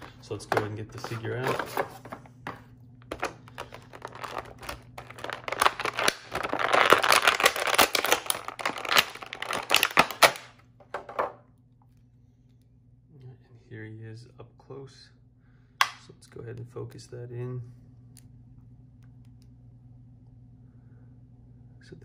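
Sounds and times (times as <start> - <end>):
plastic blister tray crinkling: 0.0 - 11.2.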